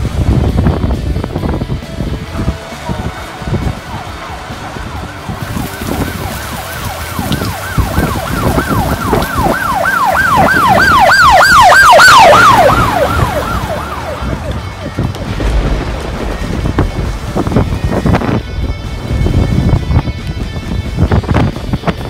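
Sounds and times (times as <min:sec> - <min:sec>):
rain: 0:00.0 - 0:21.6
wind: 0:00.0 - 0:22.0
emergency siren yelping: 0:02.8 - 0:15.5.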